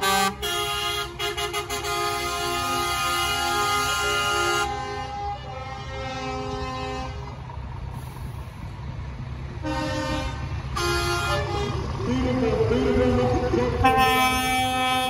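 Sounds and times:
truck air horns: 0.0 - 8.4, 9.6 - 12.0, 13.8 - 15.0
truck engines rumbling: 0.0 - 15.0.

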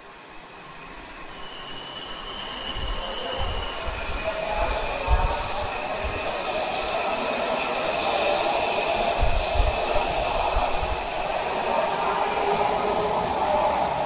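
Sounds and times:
subway train rushing past: 0.0 - 14.0.

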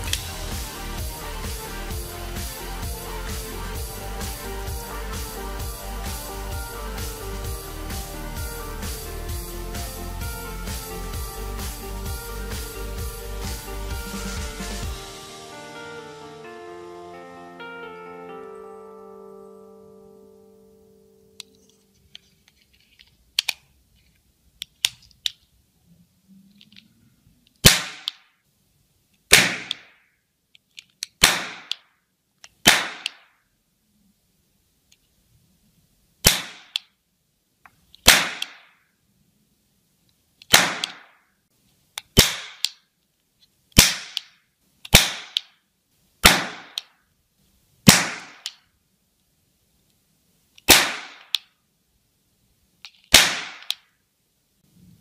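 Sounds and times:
plastic clicks of cap gun loading: 21.4 - 23.7, 24.6 - 25.5, 30.5 - 33.2, 36.6 - 37.0, 42.0 - 42.8, 43.9 - 45.6, 50.6 - 51.6, 52.8 - 53.9
cap gun bangs: 27.6 - 28.1, 29.3 - 29.9, 31.2 - 31.8, 32.7 - 33.2, 36.3 - 36.7, 38.0 - 38.7, 40.5 - 41.1, 42.2 - 42.6, 43.8 - 44.2, 44.9 - 45.4, 46.2 - 46.8, 47.9 - 48.4, 50.7 - 51.3, 53.1 - 53.7.

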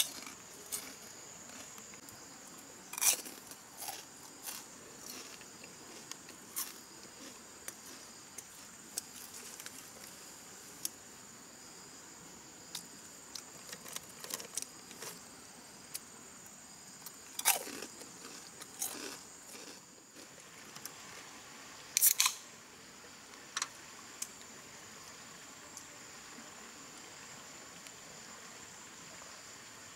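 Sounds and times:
crunchy chewing: 0.0 - 10.2, 13.3 - 15.2, 17.0 - 20.4.

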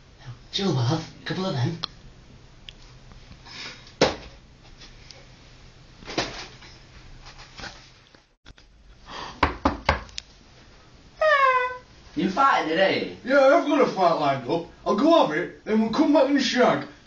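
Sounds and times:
knocks and thumps: 9.4 - 10.1.

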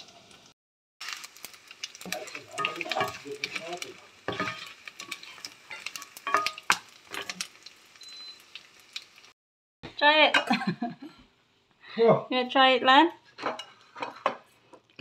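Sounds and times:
fish sizzling in hot oil: 0.0 - 9.4
spatula scraping a pan: 2.0 - 7.5, 13.2 - 14.8.

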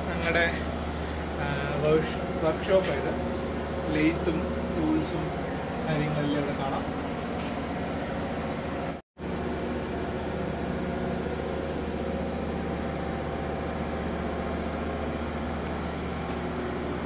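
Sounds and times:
engine room machinery drone: 0.0 - 17.0.

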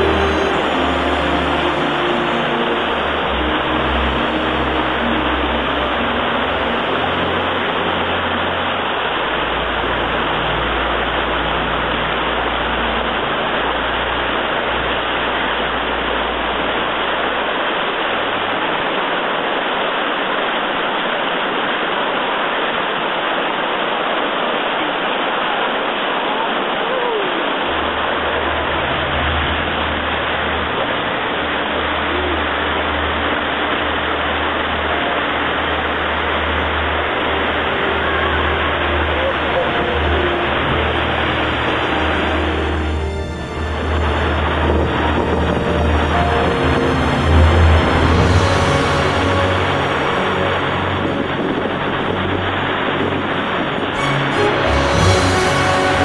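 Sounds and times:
river whitewater rushing: 0.0 - 56.0
low rumble: 28.0 - 56.0.

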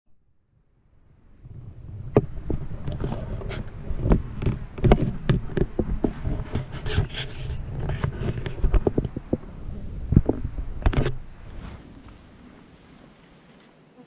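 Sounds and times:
wind rumble on microphone: 0.5 - 13.3.

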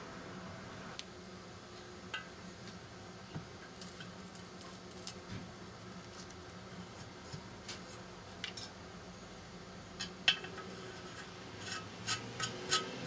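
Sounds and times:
steady low hum: 0.0 - 13.0
masking paper peeling and crinkling: 3.7 - 5.4.

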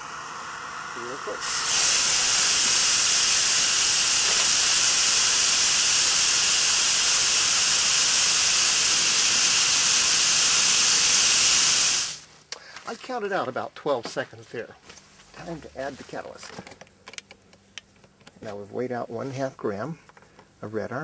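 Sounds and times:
rocket propellant burning hiss: 0.0 - 12.3.

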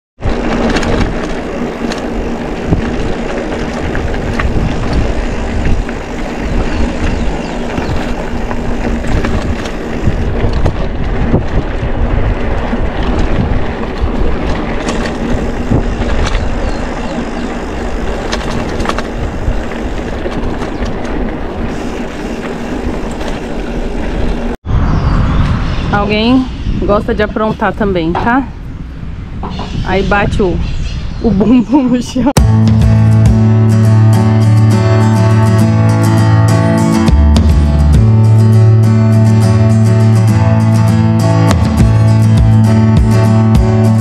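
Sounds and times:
bike clicks and rattles: 0.2 - 24.6
bike tyres rolling on dirt: 0.2 - 24.6, 30.1 - 44.0
wind on microphone: 0.2 - 32.5.

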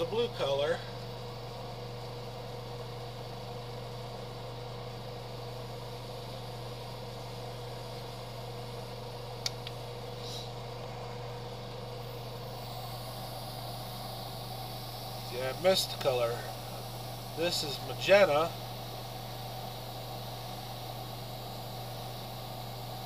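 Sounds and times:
low machine hum: 0.0 - 23.0
sharp click: 9.4 - 9.8.

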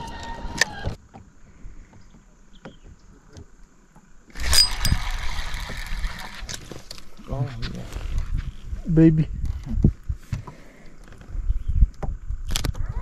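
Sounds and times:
electric trolling motor whining: 4.3 - 6.7.

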